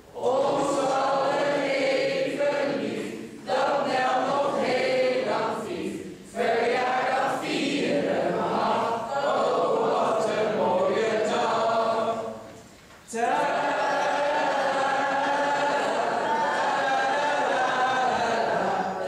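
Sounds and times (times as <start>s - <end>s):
group singing birthday song: 0.0s - 19.0s.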